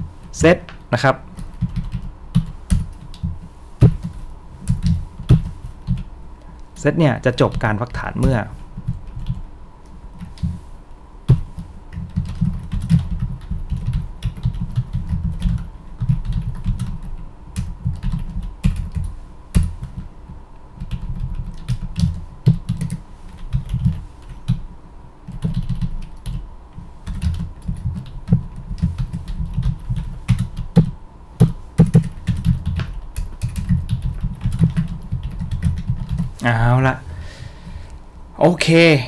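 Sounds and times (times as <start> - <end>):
typing on computer keyboard: 1.4 - 3.3, 11.3 - 20.1, 20.8 - 24.6, 25.3 - 26.4, 27.0 - 36.3.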